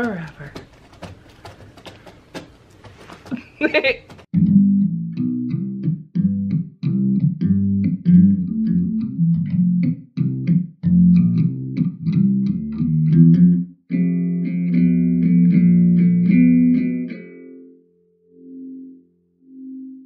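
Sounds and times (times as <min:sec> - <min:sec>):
bass guitar riff: 0:04.3 - 0:17.8.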